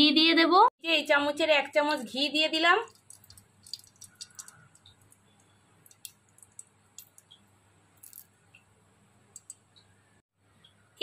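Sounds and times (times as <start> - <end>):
ghee crackling and popping: 1.7 - 8.7, 9.3 - 10.0.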